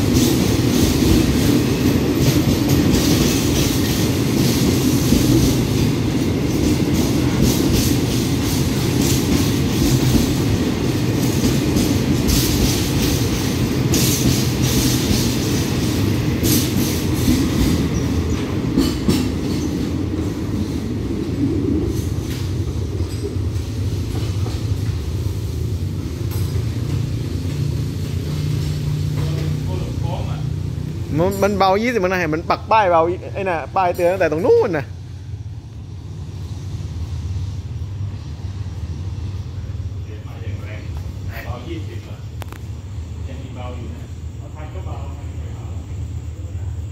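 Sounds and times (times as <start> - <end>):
wagons rattling and clanking: 0.0 - 20.8
train wheels rumbling on rail: 0.0 - 46.9.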